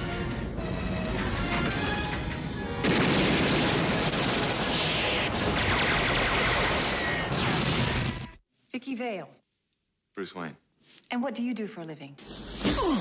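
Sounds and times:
rapid machine-gun fire: 0:02.8 - 0:08.3.

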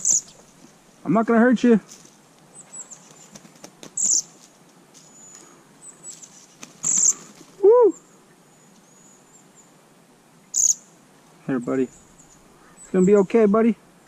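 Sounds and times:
small bird squeaking: 0:00.0 - 0:00.6, 0:02.5 - 0:09.7, 0:10.5 - 0:10.9
man exclaiming: 0:07.6 - 0:08.0.

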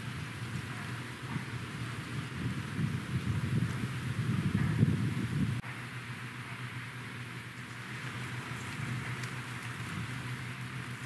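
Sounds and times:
wind buffeting microphone: 0:00.0 - 0:05.6, 0:07.8 - 0:11.0
steady hiss: 0:00.0 - 0:11.0.

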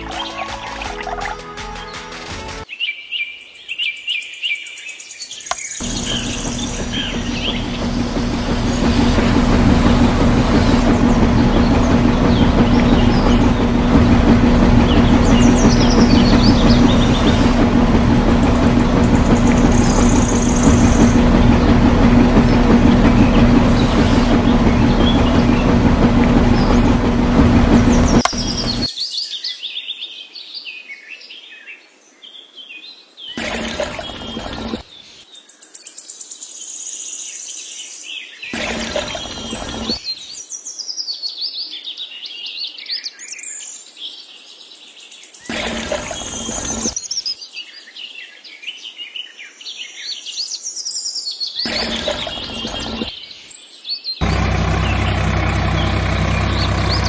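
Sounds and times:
birds chirping: 0:05.5 - 0:28.9, 0:33.4 - 0:34.8, 0:38.6 - 0:40.0, 0:45.5 - 0:47.1, 0:51.6 - 0:53.1, 0:54.2 - 0:57.0
small motor humming: 0:05.8 - 0:28.9, 0:33.4 - 0:34.8, 0:38.6 - 0:40.0, 0:45.5 - 0:47.0, 0:51.7 - 0:53.1, 0:54.2 - 0:57.0.

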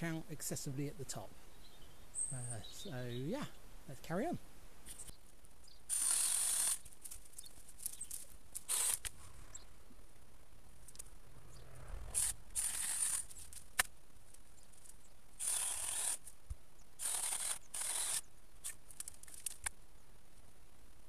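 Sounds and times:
wood snapping: 0:12.7 - 0:14.4.

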